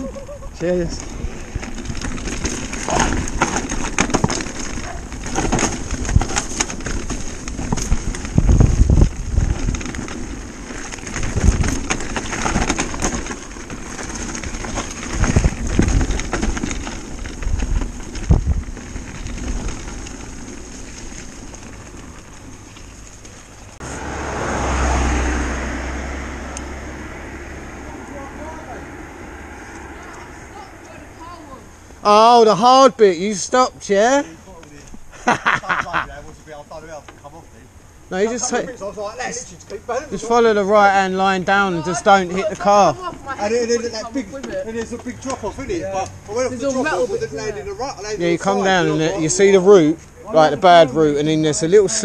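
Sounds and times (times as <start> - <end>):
bike knocking and rattling on bumps: 0.0 - 23.8, 38.2 - 47.0
bike tyres on dirt trail: 0.0 - 52.0
car passing: 18.9 - 33.6, 36.4 - 52.0.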